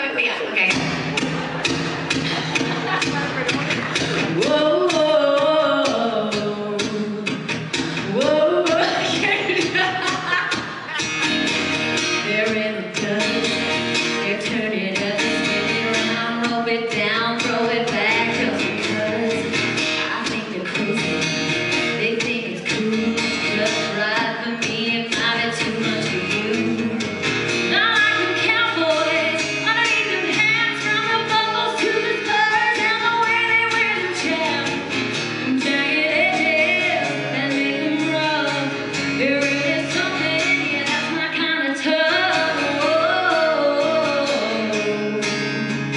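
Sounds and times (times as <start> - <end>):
acoustic guitar: 0.0 - 45.9
steady beat: 0.7 - 4.6
woman singing into a microphone: 2.5 - 45.9.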